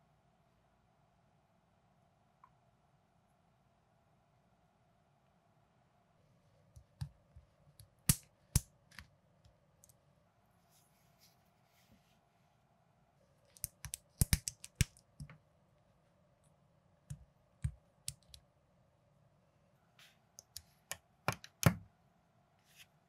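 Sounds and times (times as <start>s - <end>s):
plastic bricks clicking together: 13.5s - 15.0s.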